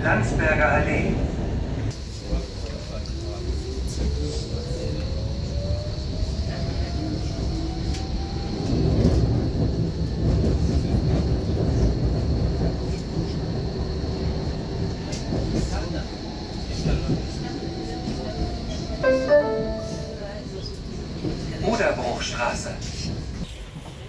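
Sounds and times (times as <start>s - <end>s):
tram wheels rumbling on rails: 0.0s - 24.0s
tram motor whine: 17.8s - 21.5s.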